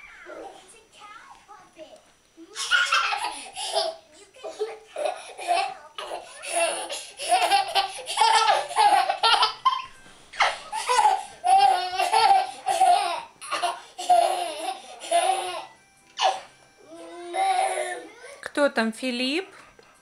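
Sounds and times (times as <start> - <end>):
toddler laughing: 2.5 - 16.4.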